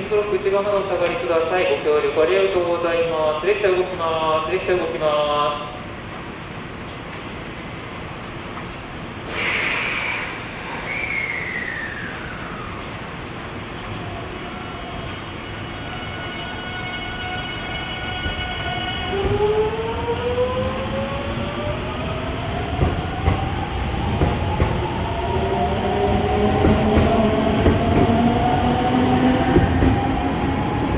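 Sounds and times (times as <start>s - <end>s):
rail-joint clicks: 26.6s - 28.2s.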